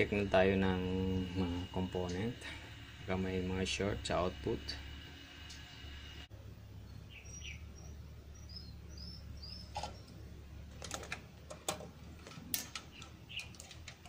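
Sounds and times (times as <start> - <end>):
low steady hum: 0.0 - 14.0
faint bird chirps: 6.8 - 10.2
probes clicking and tapping metal: 9.7 - 14.0.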